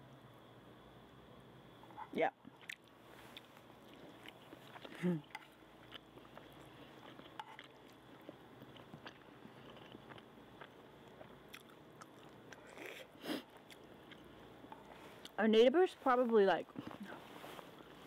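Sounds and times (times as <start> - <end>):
faint chewing with mouth clicks: 1.9 - 15.4.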